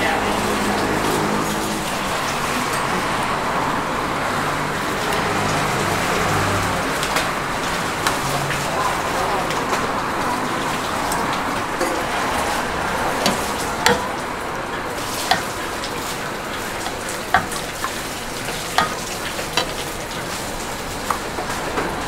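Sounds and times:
food frying hiss: 7.7 - 22.0
metal utensil clinking in pan: 13.2 - 14.3, 15.1 - 19.9.

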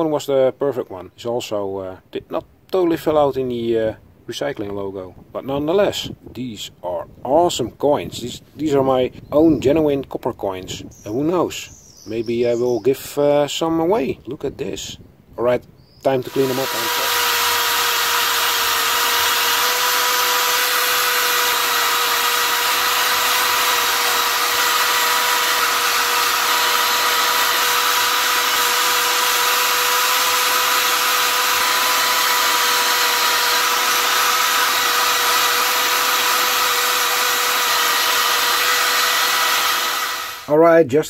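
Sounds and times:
power tool motor whine: 16.1 - 40.5.

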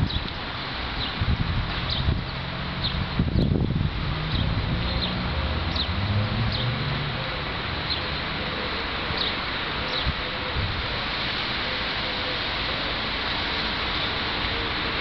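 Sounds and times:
wind noise: 0.0 - 6.9, 9.9 - 11.6.

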